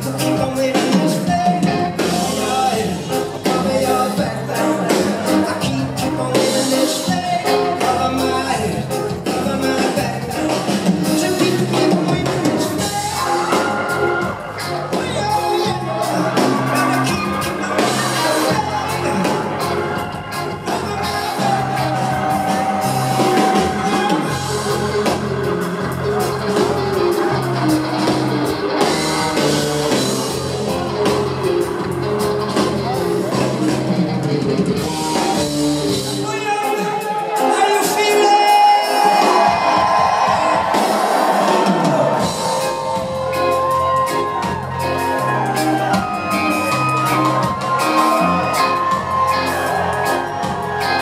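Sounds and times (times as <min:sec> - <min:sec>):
low bass notes: 0:00.0 - 0:36.3
live rock band: 0:00.0 - 0:51.0
steady drum beat: 0:00.0 - 0:51.0.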